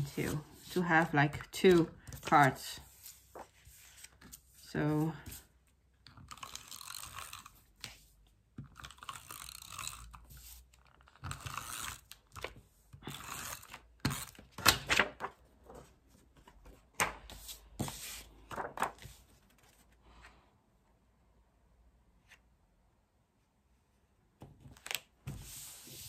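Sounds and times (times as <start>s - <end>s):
paper taps and rustles: 14.0s - 15.8s, 16.4s - 19.7s.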